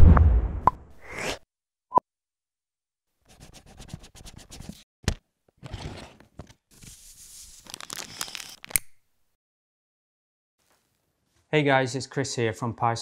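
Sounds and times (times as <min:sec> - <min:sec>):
plastic bag rustling and crinkling: 0:07.5 - 0:08.7.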